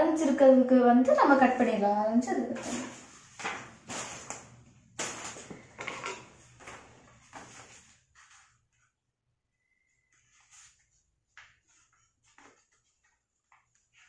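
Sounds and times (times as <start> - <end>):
paper rustling: 2.6 - 8.6.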